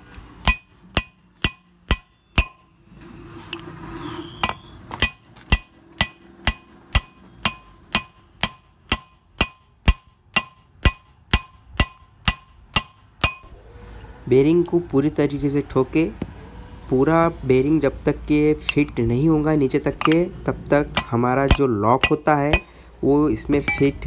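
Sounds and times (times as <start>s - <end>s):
hammer striking metal: 0.4s - 2.7s, 4.4s - 13.5s, 19.9s - 22.8s, 23.6s - 24.0s.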